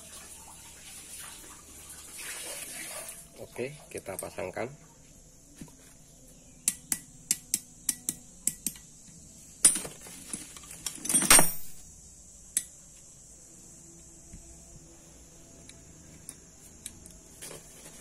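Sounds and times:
metal clatters: 0:09.6 - 0:11.8.

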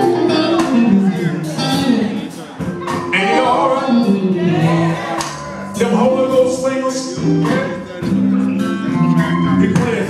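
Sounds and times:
live band playing: 0:00.0 - 0:10.0
male vocal group singing gospel: 0:03.0 - 0:08.3, 0:08.9 - 0:10.0.

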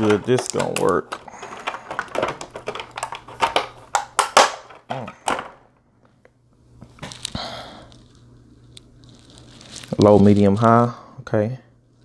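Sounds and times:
hard plastic clicking and knocking: 0:00.0 - 0:05.6.

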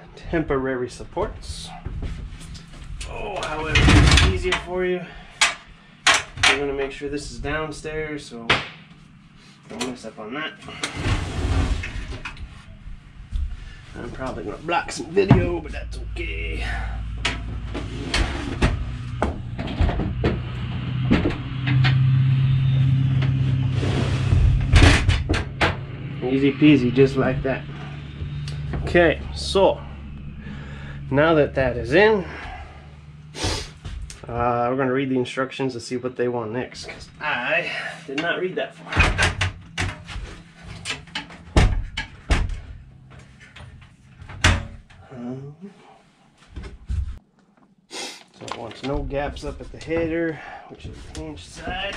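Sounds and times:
low hum: 0:00.0 - 0:35.0
ladder knocks and clunks: 0:17.2 - 0:21.9, 0:38.9 - 0:43.6
attic ladder knocking and thumping: 0:39.0 - 0:42.9.

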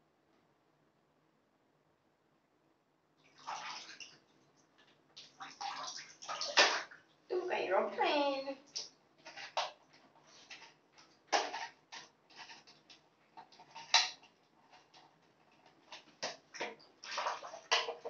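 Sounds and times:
small water splashes: 0:03.2 - 0:07.3, 0:08.6 - 0:18.0.

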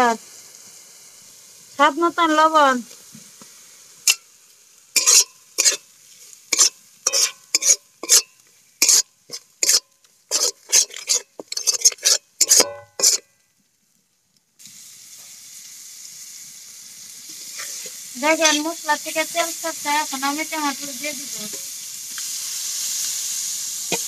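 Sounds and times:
faint sizzle: 0:00.0 - 0:24.0
wooden spatula scraping pan: 0:05.0 - 0:05.8, 0:06.5 - 0:13.2, 0:17.3 - 0:18.7.

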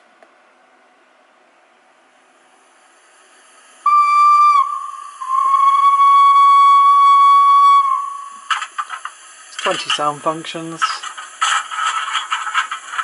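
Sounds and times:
faint steam hiss: 0:01.9 - 0:13.0
model steam whistle: 0:03.8 - 0:08.6.

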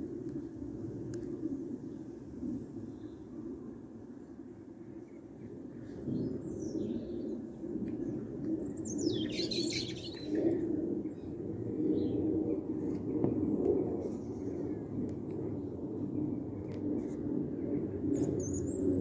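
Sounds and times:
songbirds chirping: 0:04.8 - 0:10.5.

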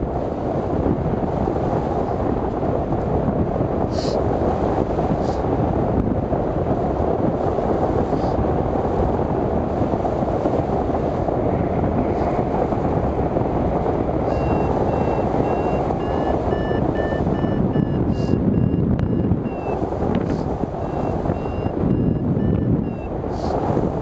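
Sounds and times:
wind rushing over microphone: 0:00.0 - 0:24.0
variometer beeping pips: 0:14.2 - 0:23.2.

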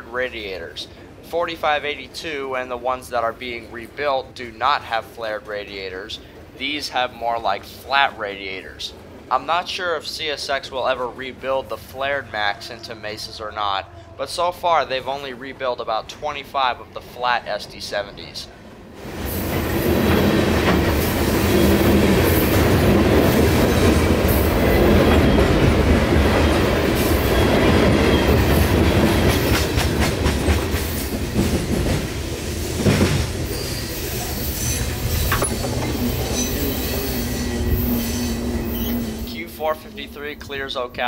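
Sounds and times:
train wheels clattering on rails: 0:19.2 - 0:39.2
loud metal clank: 0:35.2 - 0:36.0.

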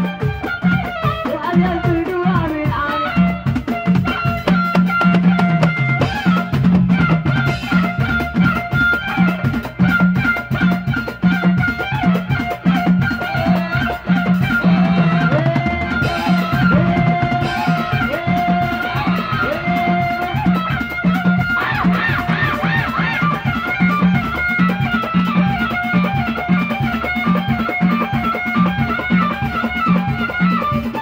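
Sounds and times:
hand drum beat: 0:00.0 - 0:31.0
violin wavering melody: 0:00.0 - 0:31.0.

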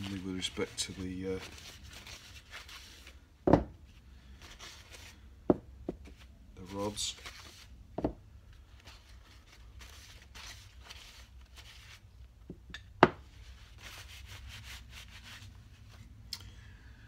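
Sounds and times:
cloth wiping metal: 0:13.4 - 0:16.1.

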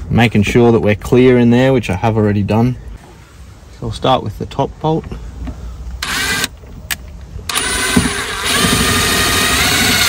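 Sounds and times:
screw gun motor whine: 0:06.0 - 0:06.5, 0:07.5 - 0:10.0.

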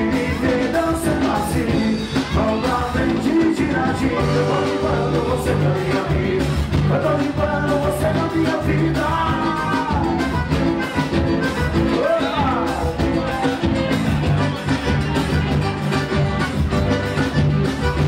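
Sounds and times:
lead singer vocals: 0:00.0 - 0:10.4
accordion: 0:00.0 - 0:18.0
drums: 0:00.0 - 0:18.0
electric bass: 0:00.0 - 0:18.0
guitar: 0:00.0 - 0:18.0
keyboard: 0:00.0 - 0:18.0.

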